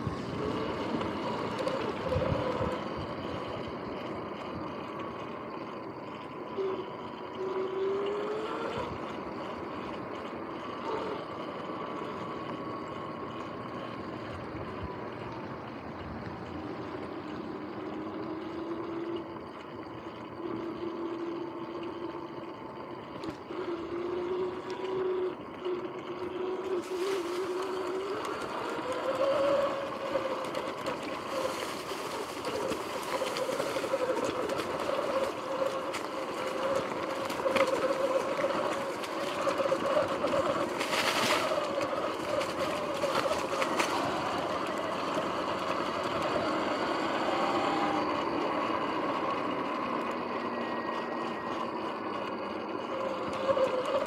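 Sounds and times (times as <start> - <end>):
tyre and wind noise: 0.0 - 4.8, 26.7 - 51.0
electric motor whine: 0.0 - 54.0.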